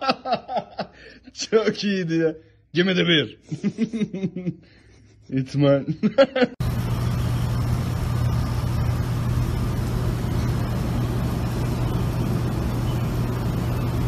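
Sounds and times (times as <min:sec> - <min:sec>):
loud steady rushing noise: 0:06.6 - 0:14.0
low hum: 0:06.6 - 0:14.0.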